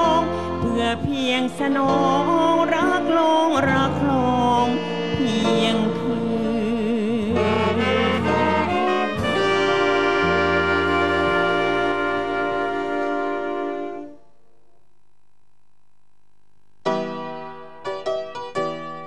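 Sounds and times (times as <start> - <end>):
woman singing: 0.0 - 8.5
big band playing: 8.2 - 14.0.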